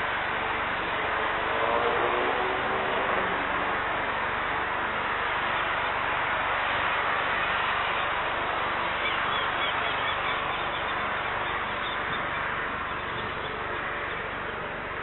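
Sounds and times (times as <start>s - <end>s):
distant jet engines rushing: 0.0s - 15.0s
small birds chirping: 8.8s - 14.6s.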